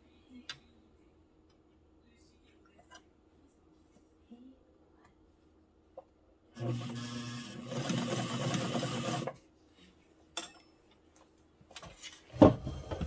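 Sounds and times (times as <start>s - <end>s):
sewing machine stitching: 6.6s - 9.4s.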